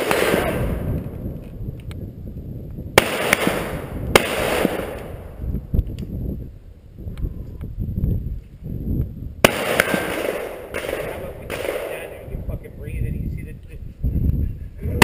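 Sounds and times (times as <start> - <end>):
loud echoing gunshots: 0.0 - 1.2, 3.0 - 5.4, 9.4 - 12.6.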